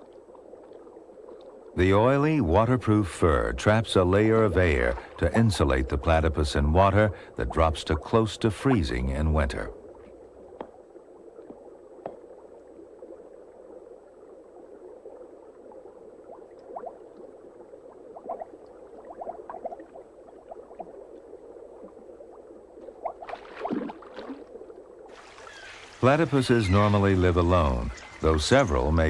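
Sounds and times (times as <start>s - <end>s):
underwater stream bubbling: 0.0s - 29.0s.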